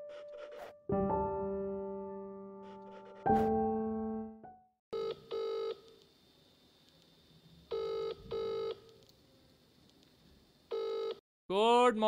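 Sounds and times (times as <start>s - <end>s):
phone ringing tone: 4.9s - 5.8s, 7.7s - 8.8s, 10.7s - 11.2s.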